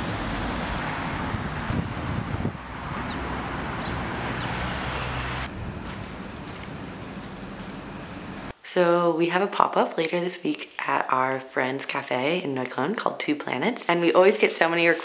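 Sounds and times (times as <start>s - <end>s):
cars driving past: 0.0s - 8.5s
wind on microphone: 0.0s - 8.5s.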